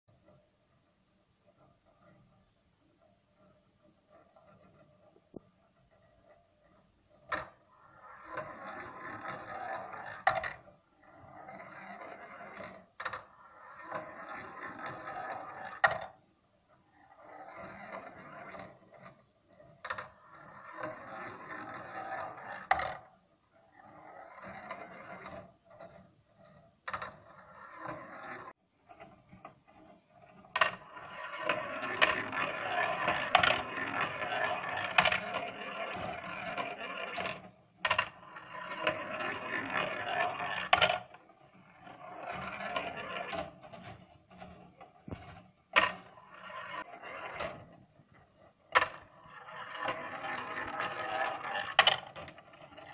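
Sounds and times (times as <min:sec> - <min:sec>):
steel balls rolling on plastic track: 0:00.1 - 0:52.9
balls clicking: 0:30.3 - 0:47.6.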